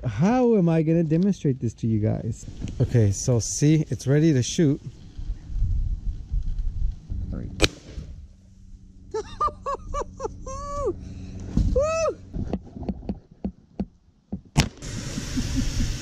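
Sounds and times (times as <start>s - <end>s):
shotgun bang: 7.6s - 8.2s.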